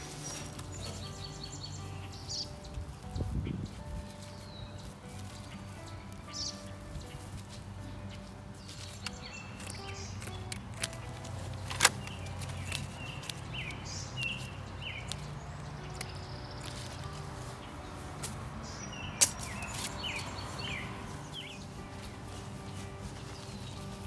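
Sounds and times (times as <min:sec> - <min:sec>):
birds chirping: 0:00.0 - 0:24.0
outdoor background noise: 0:00.0 - 0:24.0
scissors snipping plastic netting: 0:09.6 - 0:13.5, 0:19.2 - 0:20.0.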